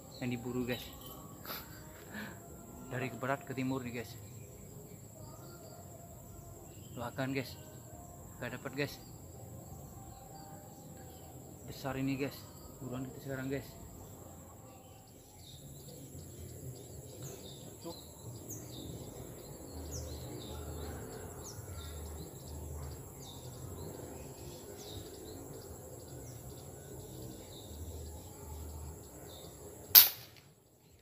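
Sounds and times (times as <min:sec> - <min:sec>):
insect whine: 0:00.0 - 0:30.9
loud air rifle shot: 0:29.9 - 0:30.4.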